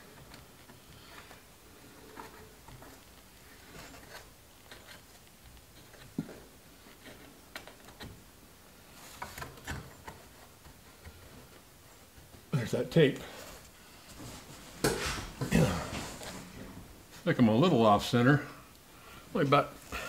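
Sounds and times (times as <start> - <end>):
fabric rustling and rubbing: 13.4 - 17.3.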